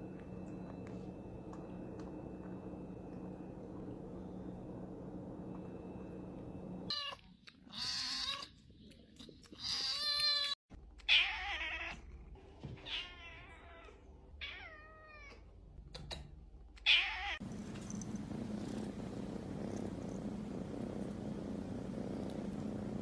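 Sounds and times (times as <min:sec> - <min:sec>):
cat meowing: 0:09.6 - 0:12.0
cat purring: 0:17.4 - 0:23.0.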